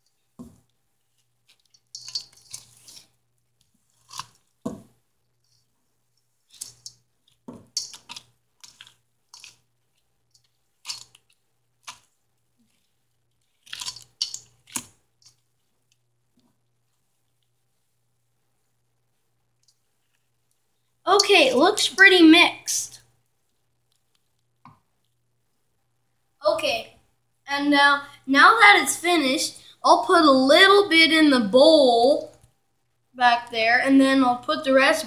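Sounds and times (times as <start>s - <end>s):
wooden spoon stirring in steel bowl: 0.0s - 25.6s
wet squishes and scrapes: 0.1s - 18.1s, 19.5s - 25.3s.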